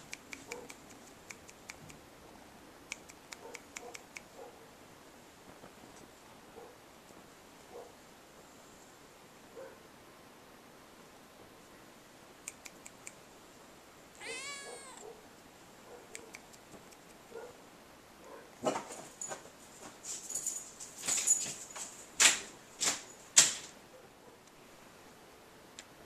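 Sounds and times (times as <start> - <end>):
kitten meowing: 14.2 - 15.0.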